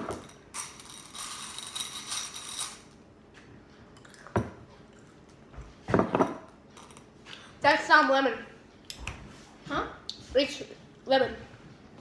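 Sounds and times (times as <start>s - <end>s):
candy rattling in ceramic bowl: 0.0s - 2.9s.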